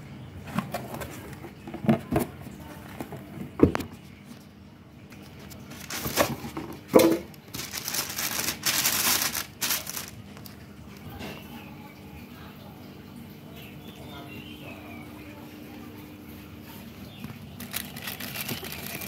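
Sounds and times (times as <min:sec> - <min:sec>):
plastic wrapping crinkling: 0:05.2 - 0:10.6, 0:17.3 - 0:19.0.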